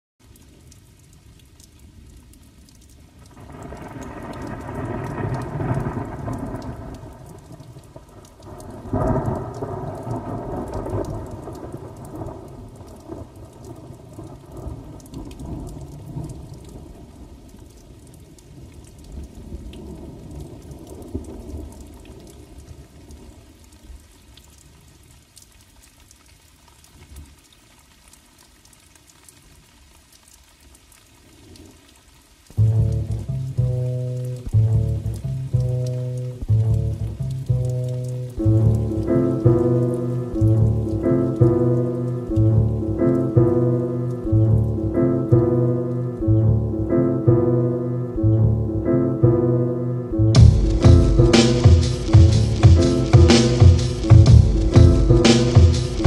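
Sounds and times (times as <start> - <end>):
rain: 0.0 - 56.0
thunder rolling: 3.4 - 13.3, 50.3 - 56.0.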